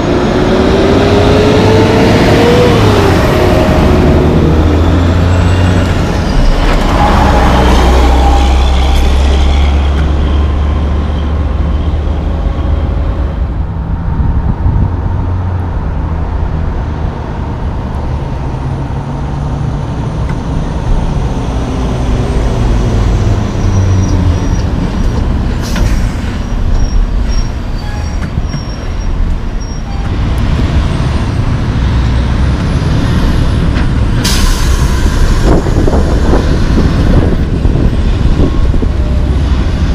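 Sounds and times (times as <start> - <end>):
diesel trucks rumbling past: 0.0 - 39.9
traffic noise: 0.0 - 39.9
air brake hisses: 34.2 - 35.5.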